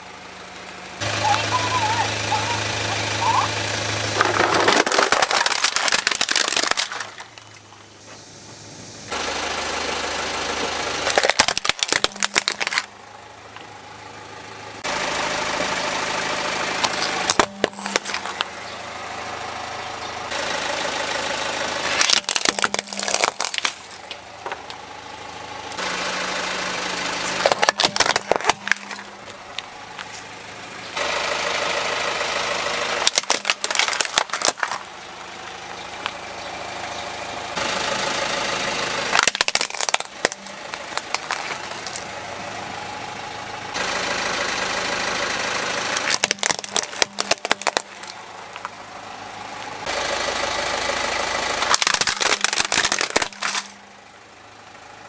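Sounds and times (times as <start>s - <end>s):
car engine running: 0.0s - 55.0s
plastic toys cracking and crunching: 4.2s - 7.8s, 11.0s - 12.9s, 16.8s - 18.5s, 21.8s - 24.8s, 27.2s - 30.1s, 33.0s - 34.9s, 39.1s - 42.1s, 46.0s - 48.8s, 51.6s - 53.8s.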